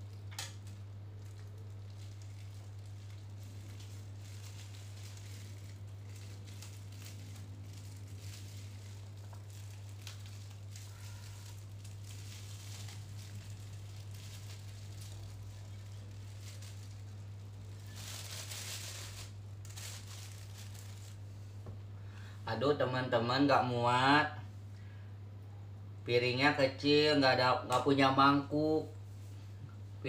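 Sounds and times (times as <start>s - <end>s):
food packaging rustling: 0.0s - 21.3s
steady low hum: 0.0s - 30.0s.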